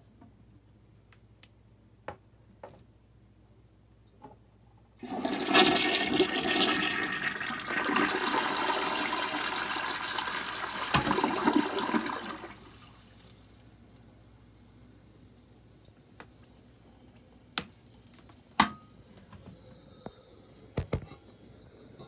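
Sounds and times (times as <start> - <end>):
toilet flushing: 5.0 - 13.2.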